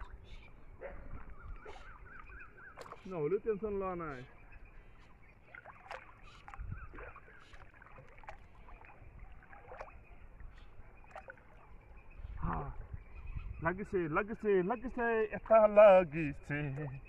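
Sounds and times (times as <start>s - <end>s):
water sloshing and dripping: 0.0s - 13.2s
water splashes: 0.0s - 17.0s.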